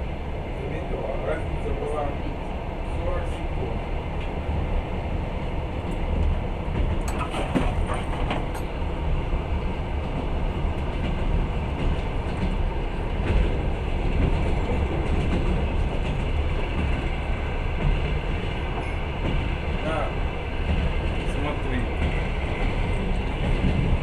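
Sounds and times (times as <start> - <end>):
train wheels rumbling: 0.0 - 24.0
sharp clicks of train wheels: 5.7 - 24.0.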